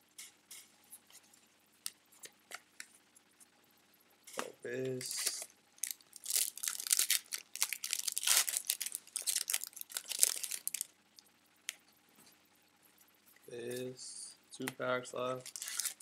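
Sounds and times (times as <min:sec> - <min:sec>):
plastic wrapper crinkling: 0:05.0 - 0:10.9, 0:15.4 - 0:16.0.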